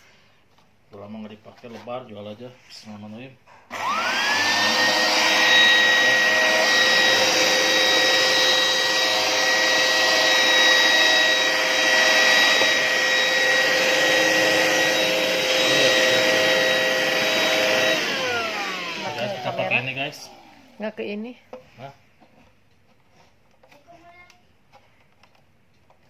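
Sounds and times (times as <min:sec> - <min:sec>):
handheld vacuum cleaner whine: 0:03.7 - 0:20.8.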